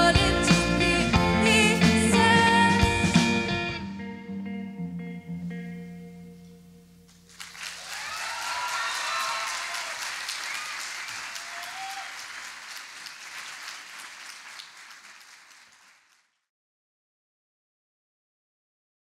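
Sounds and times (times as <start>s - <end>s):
audience applauding: 7.2s - 16.4s
cheers and shouts: 7.7s - 12.3s.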